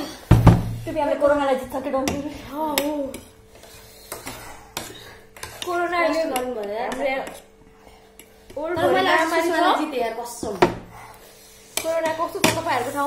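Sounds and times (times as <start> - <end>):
woman's voice: 0.8 - 3.2, 5.6 - 7.4, 8.6 - 10.8, 11.8 - 13.0.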